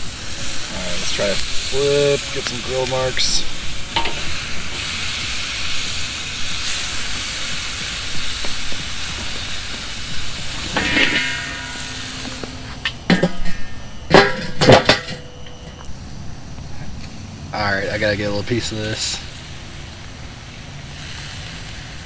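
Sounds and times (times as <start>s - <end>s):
fish sizzling on a grill: 0.0s - 22.0s
metal grill lid clanking: 0.9s - 5.9s, 10.2s - 15.8s.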